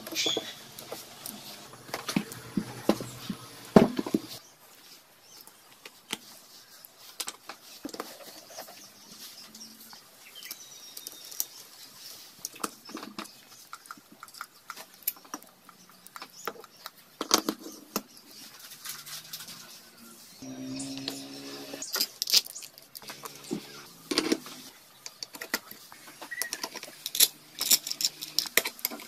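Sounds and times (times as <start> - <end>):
spanner clicking on metal parts: 26.4 - 29.0.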